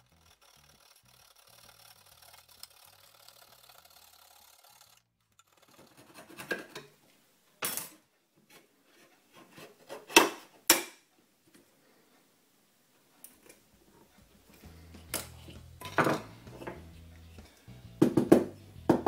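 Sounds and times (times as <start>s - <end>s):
faint background music: 13.4s - 19.0s.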